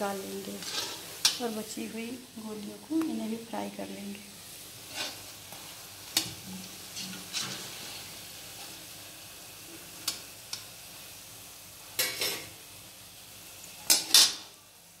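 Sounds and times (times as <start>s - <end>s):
deep-frying oil sizzle: 0.0s - 15.0s
spatula scraping and clinking pan: 0.6s - 1.4s.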